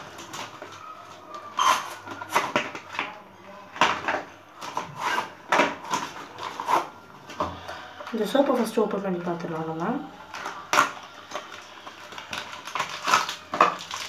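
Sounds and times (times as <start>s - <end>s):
packaging rustle: 10.2s - 14.0s.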